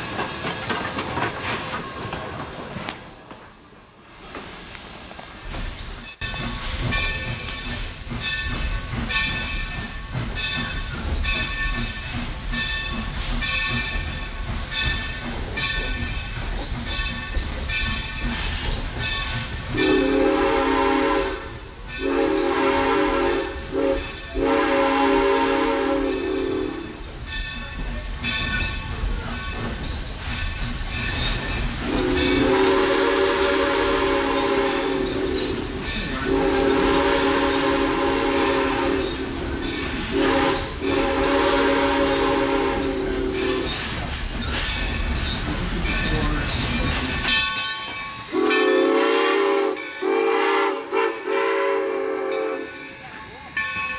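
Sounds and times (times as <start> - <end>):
train horn: 19.7 - 27.0, 31.8 - 35.6, 36.2 - 39.3, 40.1 - 43.6, 48.3 - 52.9.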